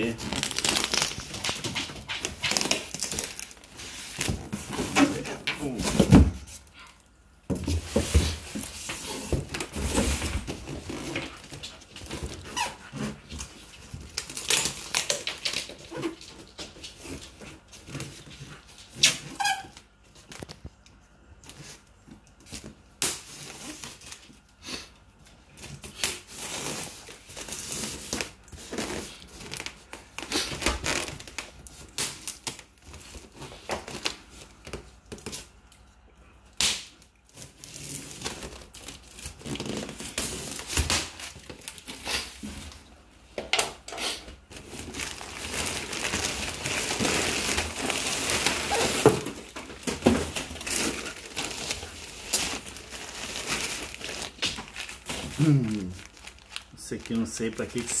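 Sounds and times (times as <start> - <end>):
crumpled newspaper crinkling: 0.0 - 20.8, 37.3 - 42.9, 44.4 - 58.0.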